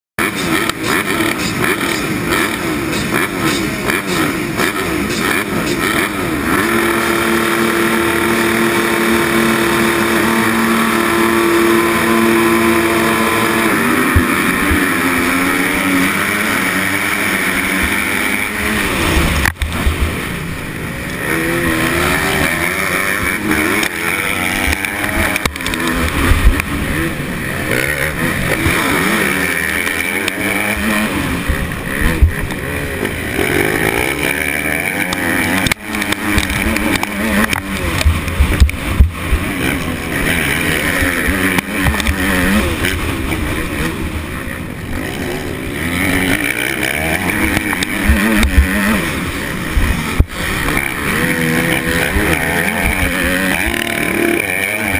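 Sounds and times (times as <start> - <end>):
motocross bike engines revving: 0.2 - 54.9
nearby motorbike revving: 0.2 - 54.9.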